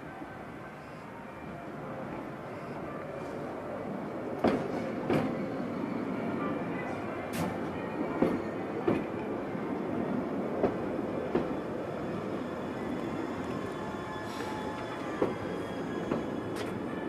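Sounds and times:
train rumbling: 3.8s - 17.0s.

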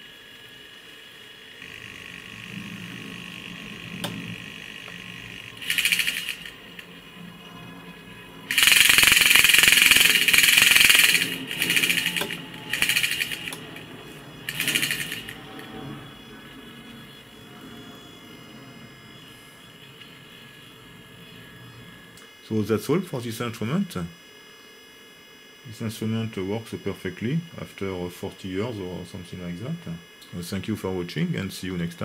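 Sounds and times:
servo motor and gears whirring: 1.6s - 7.7s, 8.4s - 22.1s.

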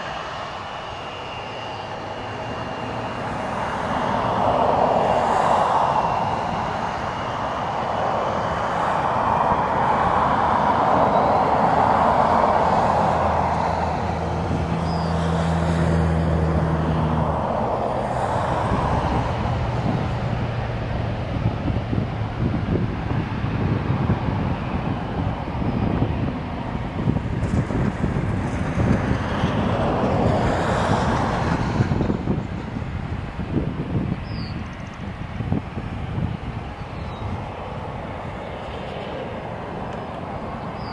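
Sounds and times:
thin high whine: 0.0s - 4.4s
jet engines roaring: 0.0s - 40.9s.

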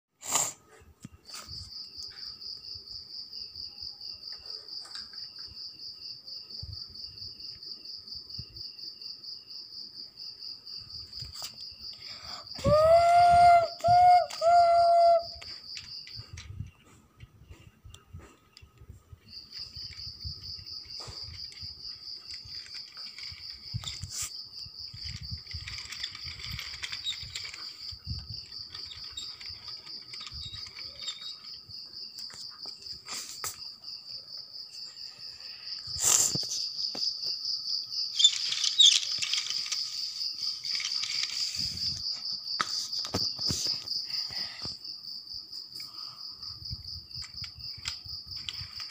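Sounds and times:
cricket trilling: 0.2s - 48.9s
toy train clicking on track: 11.2s - 16.5s, 20.8s - 24.3s, 24.9s - 31.6s, 38.2s - 42.0s, 47.2s - 48.9s.

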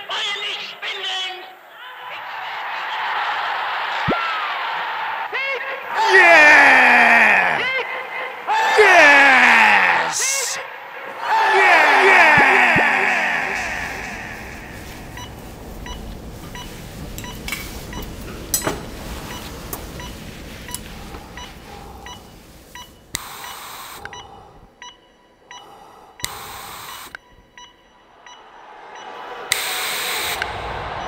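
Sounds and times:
breathing through oxygen mask: 11.3s - 18.2s, 19.1s - 24.8s, 25.5s - 27.2s
heart monitor beeping: 11.5s - 31.0s.

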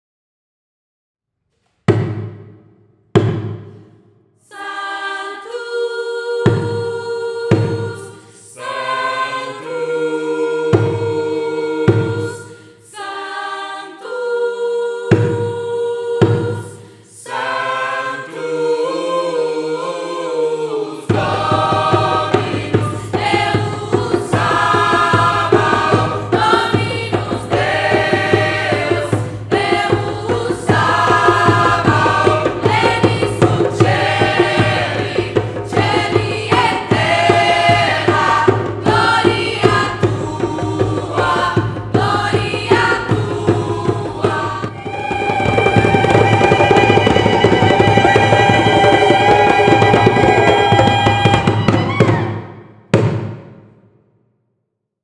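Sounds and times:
group of voices singing: 4.4s - 52.6s
drum beat with bass: 37.4s - 52.2s.

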